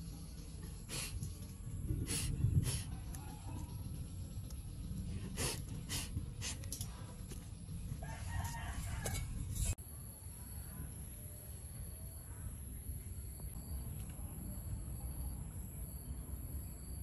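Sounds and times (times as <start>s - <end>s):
rooster crowing: 8.0s - 9.4s.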